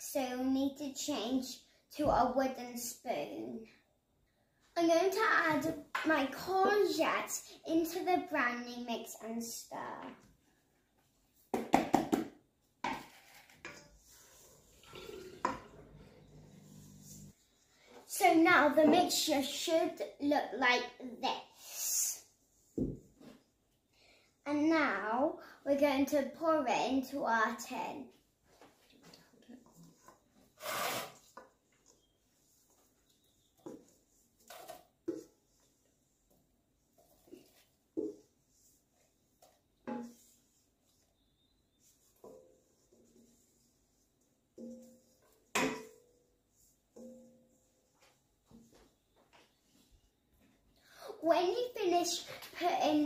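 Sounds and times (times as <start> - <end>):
wooden spoon scraping bowl: 12.9 - 17.4, 29.6 - 35.8.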